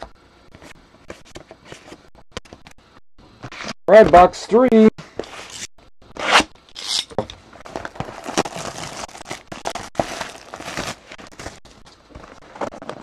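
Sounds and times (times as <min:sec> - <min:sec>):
plastic shrink wrap crinkling: 0:07.6 - 0:13.0.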